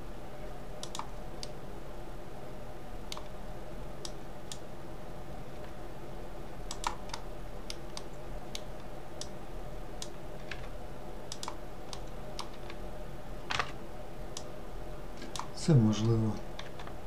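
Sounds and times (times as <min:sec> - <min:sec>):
low electrical hum: 0:00.0 - 0:17.0
keyboard and mouse clicks: 0:00.8 - 0:01.6, 0:06.7 - 0:09.3, 0:11.3 - 0:12.8, 0:15.2 - 0:15.5.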